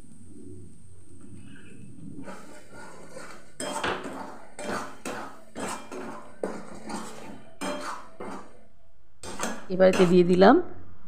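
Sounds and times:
paste frying: 2.2 - 8.6, 9.2 - 10.4
metal spatula scraping pan: 2.2 - 10.4.

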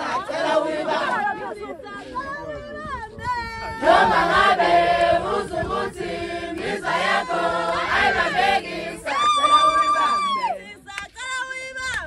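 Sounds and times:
women and girls singing in chorus: 0.0 - 2.6, 3.6 - 9.7.

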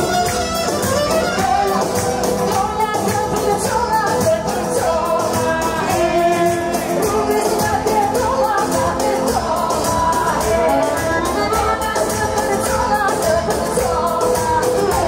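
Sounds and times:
violin: 0.0 - 2.8
steady beat: 0.0 - 15.0
woman singing: 0.0 - 15.0.

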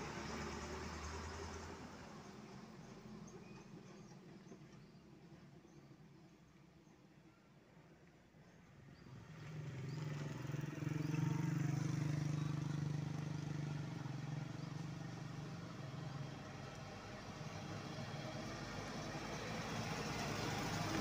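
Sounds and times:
diesel truck engine: 0.0 - 3.4, 9.2 - 21.0.

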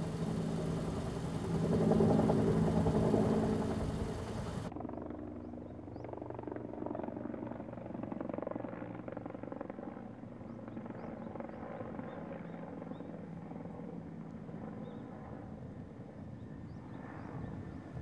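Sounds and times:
low engine drone: 0.0 - 4.7.

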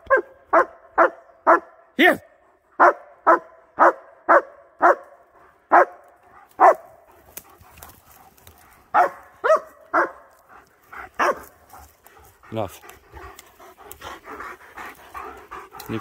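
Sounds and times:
dog barking: 0.0 - 1.9, 2.8 - 7.9, 8.9 - 10.4, 11.1 - 11.6.

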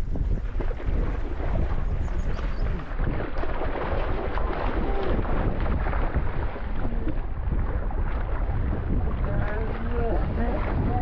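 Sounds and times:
wind rumbling on microphone: 0.0 - 11.0
fish splashing in water: 0.4 - 9.0.

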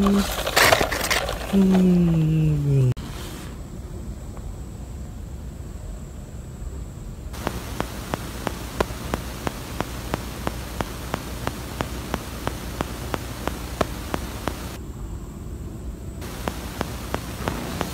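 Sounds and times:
steady hiss: 2.7 - 17.9
sharp clicks: 7.4 - 14.8, 16.2 - 17.9.

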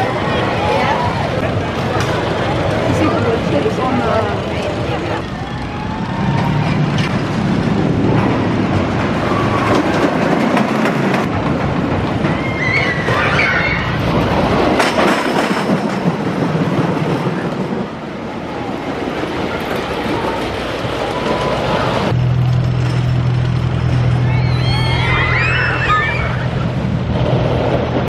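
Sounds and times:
roller coaster rumbling on wooden track: 0.0 - 28.0
wavering high-pitched sound: 24.2 - 26.7.

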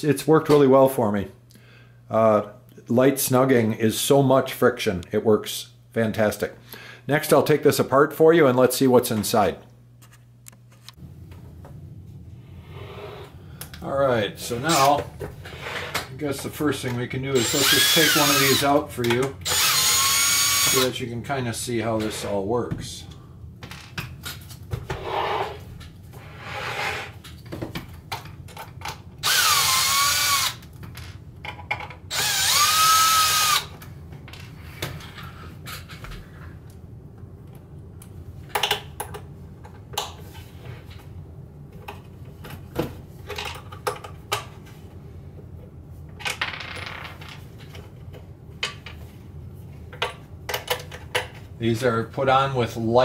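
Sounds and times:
cordless drill whirring: 17.4 - 18.6, 19.4 - 20.8, 29.2 - 30.6, 32.1 - 33.7.

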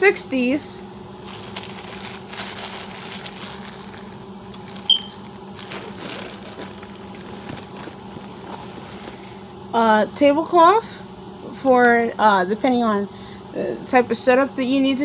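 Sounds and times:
steady low hum: 0.0 - 15.0
plastic bag crinkling: 1.1 - 9.6
short high squeak: 4.9 - 5.2.

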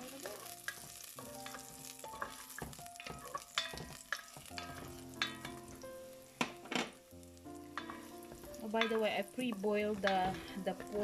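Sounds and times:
background music: 0.0 - 11.0
faint sizzle: 0.0 - 11.0
spoon scraping and knocking pot: 0.7 - 5.8, 7.7 - 11.0.

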